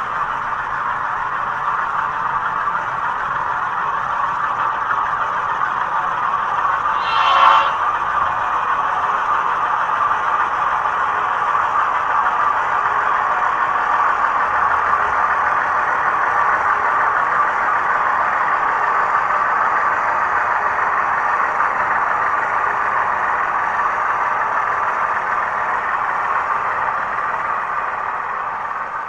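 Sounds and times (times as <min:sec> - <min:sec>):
model train running on track: 0:00.0 - 0:29.0.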